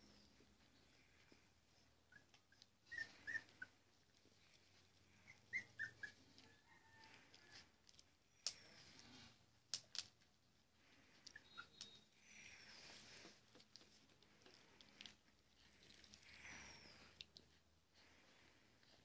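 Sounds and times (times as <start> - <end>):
puppies squeaking: 0.2 - 4.2, 5.0 - 6.4, 11.2 - 13.3.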